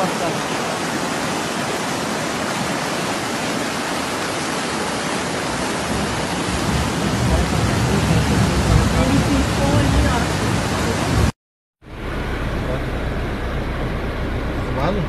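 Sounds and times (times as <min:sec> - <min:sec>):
heavy rain and rushing water: 0:00.0 - 0:11.4
low rumble: 0:05.9 - 0:15.0.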